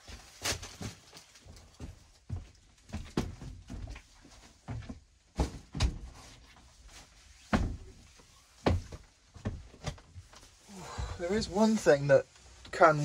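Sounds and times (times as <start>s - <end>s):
heavy footsteps on wooden floor: 1.7s - 6.2s, 8.6s - 11.6s.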